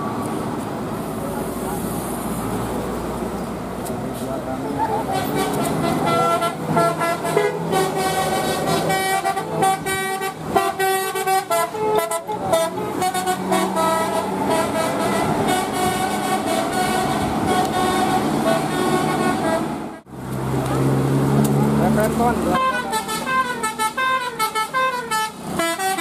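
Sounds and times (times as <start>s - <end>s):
bus engine rumble: 0.0s - 26.0s
multi-tone air horn melody: 5.1s - 20.1s, 22.5s - 26.0s.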